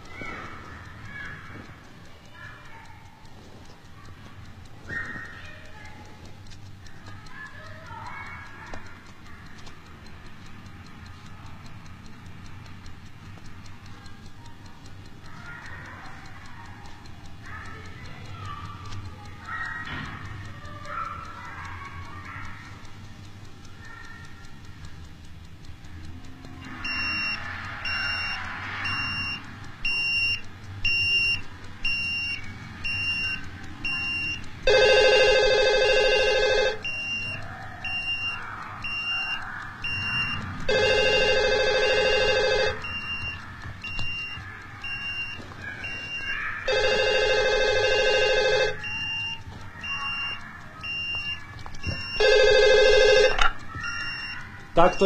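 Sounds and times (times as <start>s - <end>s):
telephone ringing: 34.6s - 37.0s, 40.7s - 43.3s, 46.0s - 49.3s, 50.9s - 55.0s.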